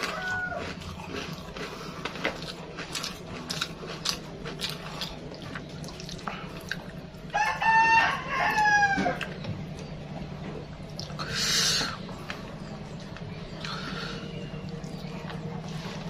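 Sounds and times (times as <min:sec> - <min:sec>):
rooster crowing: 0:00.0 - 0:00.8, 0:07.3 - 0:09.3
person eating by hand: 0:00.0 - 0:16.0.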